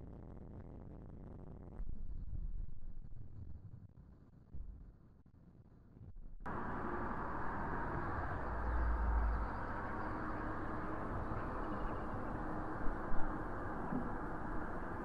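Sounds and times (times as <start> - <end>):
vehicle road noise: 6.5 - 15.0.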